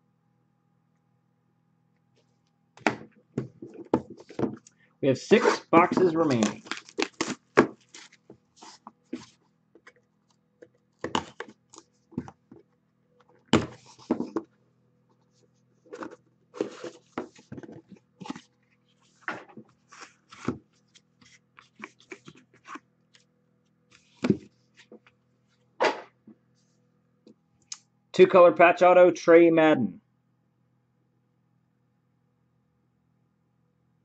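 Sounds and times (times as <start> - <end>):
cardboard and plastic handling: 2.8 - 4.7, 5.4 - 12.7, 13.4 - 14.5, 15.9 - 23.2, 23.9 - 25.0.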